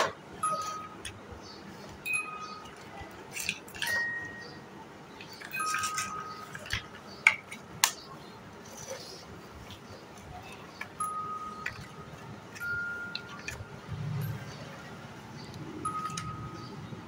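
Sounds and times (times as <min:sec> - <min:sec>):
short ringing tones: 0:02.0 - 0:02.7, 0:11.0 - 0:14.6, 0:15.8 - 0:16.9
plastic blocks clacking together: 0:02.7 - 0:04.1, 0:05.2 - 0:08.0.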